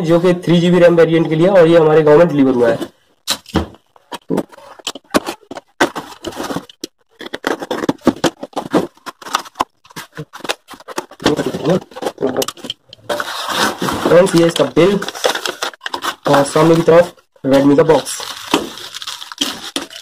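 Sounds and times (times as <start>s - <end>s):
clicks and rustles of box handling: 3.8s - 17.2s.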